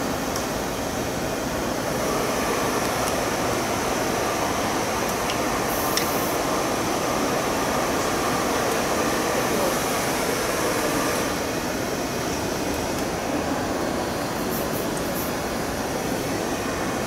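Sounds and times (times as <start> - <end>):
steady rushing ventilation noise: 0.0 - 17.0.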